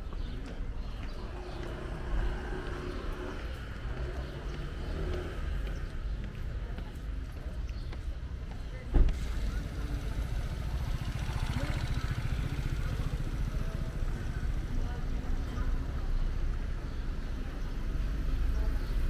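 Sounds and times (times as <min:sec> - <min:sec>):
people talking faintly: 0:00.0 - 0:19.0
steady low street rumble: 0:00.0 - 0:19.0.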